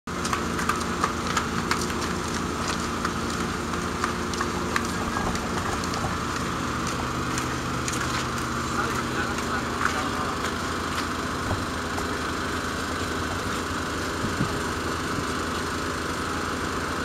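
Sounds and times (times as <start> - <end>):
diesel truck engine idling: 0.1 - 17.0.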